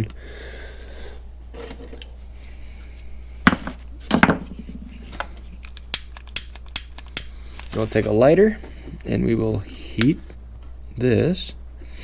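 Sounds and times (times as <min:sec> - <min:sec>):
low steady hum: 0:00.0 - 0:12.0
objects knocking on workbench: 0:03.5 - 0:04.5.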